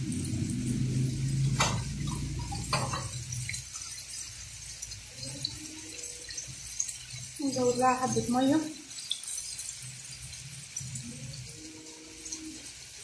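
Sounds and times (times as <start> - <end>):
low hum: 0.0 - 3.6
sauce simmering in a metal pan: 0.0 - 13.0.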